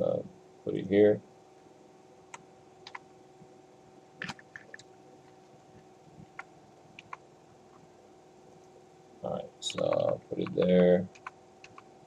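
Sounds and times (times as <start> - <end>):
faint steady hum: 0.0 - 12.0
computer clicks: 2.3 - 3.0, 4.2 - 4.9, 6.4 - 7.2, 9.7 - 11.9.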